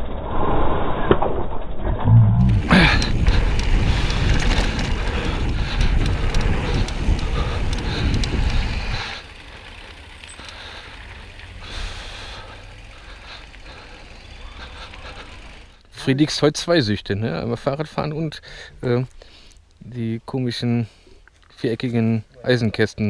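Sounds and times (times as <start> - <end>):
tyres crunching over stones: 2.4 - 8.8
wind buffeting microphone: 2.4 - 9.3
bike rattling: 2.4 - 15.8.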